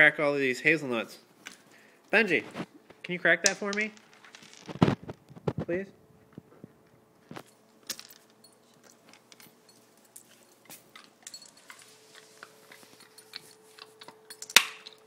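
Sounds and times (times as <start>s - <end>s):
dog chewing a nut: 8.7s - 15.0s.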